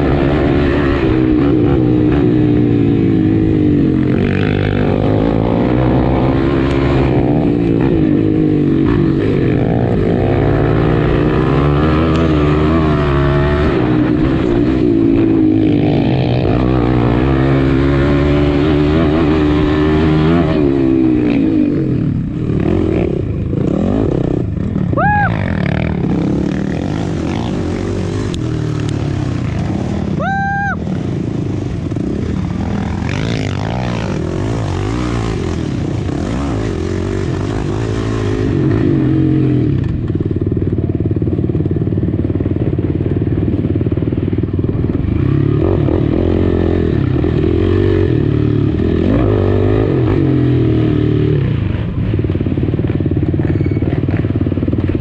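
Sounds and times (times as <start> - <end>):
quad engine revving: 0.0 - 30.1, 32.0 - 40.4, 45.0 - 51.7
high whistle-like tone: 53.4 - 54.0.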